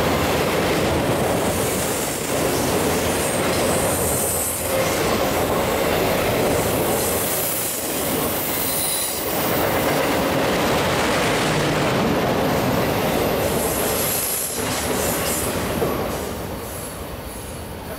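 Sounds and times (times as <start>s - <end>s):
high wheel squeal: 8.4s - 9.4s.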